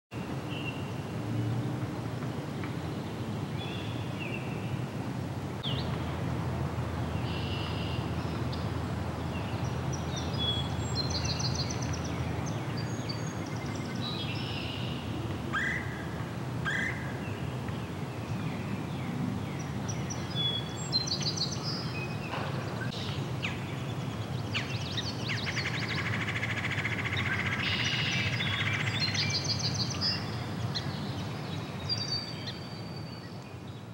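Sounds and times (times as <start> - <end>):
small birds singing and chirping: 7.2 - 15.0, 16.7 - 33.9.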